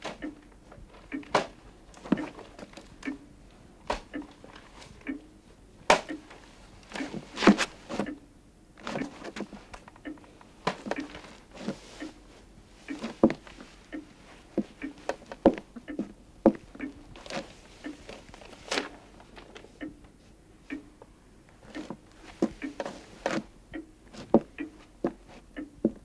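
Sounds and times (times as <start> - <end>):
footsteps on wooden floor: 1.0 - 3.2, 12.9 - 18.2, 21.7 - 23.5, 24.1 - 26.0.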